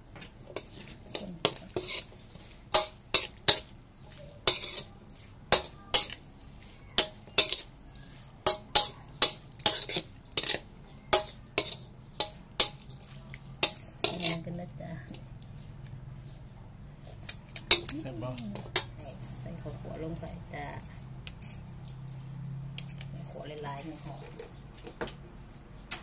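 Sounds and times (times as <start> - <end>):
metal spatula scraping wok: 0.4 - 15.2, 17.0 - 22.2.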